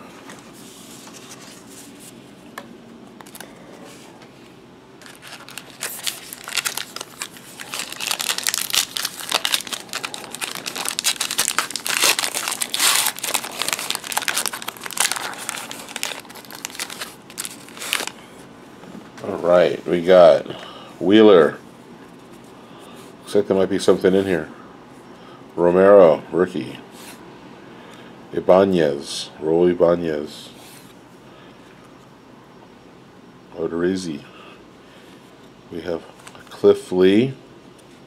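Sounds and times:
foil wrapper tearing and crinkling: 0:05.0 - 0:18.2.

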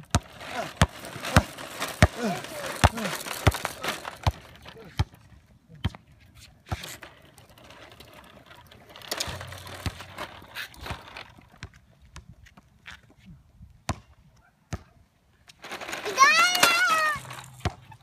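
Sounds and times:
plastic wheels rolling over concrete: 0:00.0 - 0:05.5, 0:06.2 - 0:12.2, 0:15.5 - 0:18.0.

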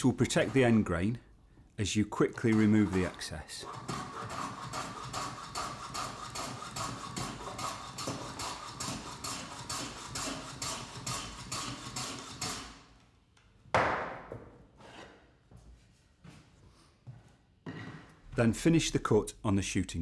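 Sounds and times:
bench plane strokes on wood: 0:00.0 - 0:00.9, 0:02.3 - 0:12.8.

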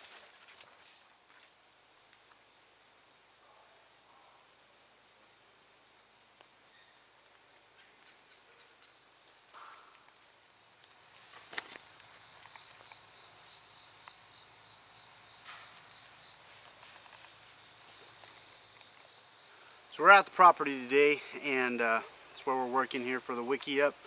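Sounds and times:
high-pitched insect drone: 0:12.1 - 0:19.8.

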